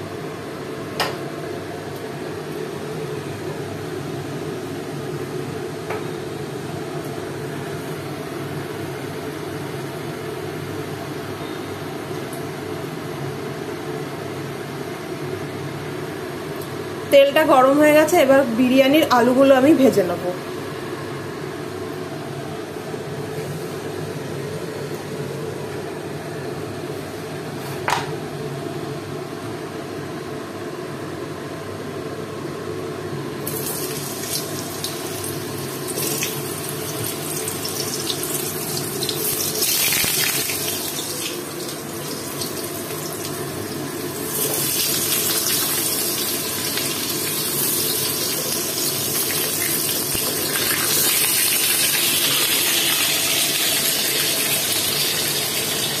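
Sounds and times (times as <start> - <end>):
potatoes sizzling in oil: 33.4 - 56.0.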